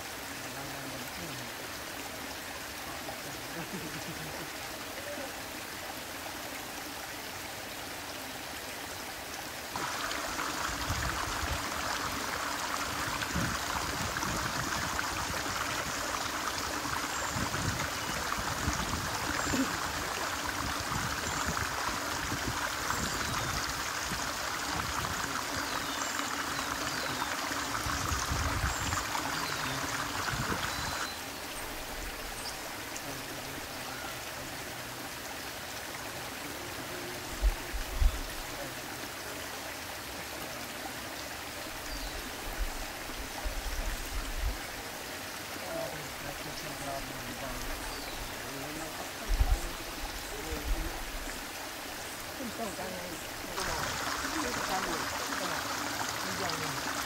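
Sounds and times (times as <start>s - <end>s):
stream flowing over rocks: 0.0s - 57.0s.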